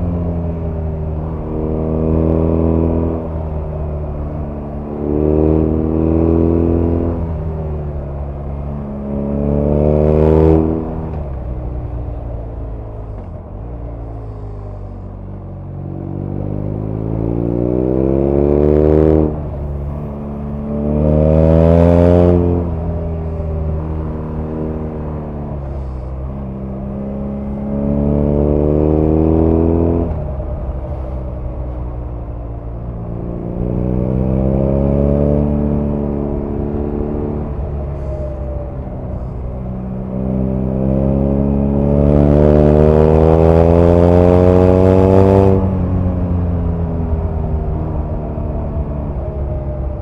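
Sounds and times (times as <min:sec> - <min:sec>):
motorcycle engine running: 0:00.0 - 0:50.0.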